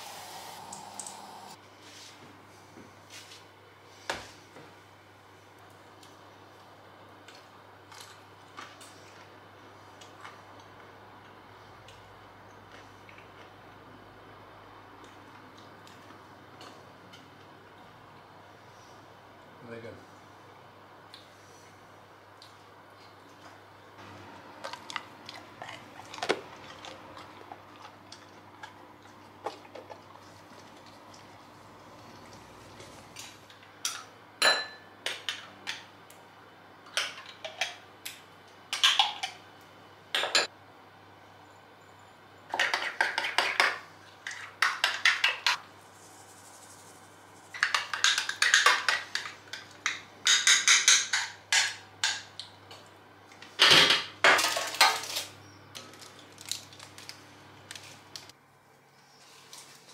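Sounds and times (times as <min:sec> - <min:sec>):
kitchenware clattering: 0:33.9 - 0:34.9, 0:47.6 - 0:52.3.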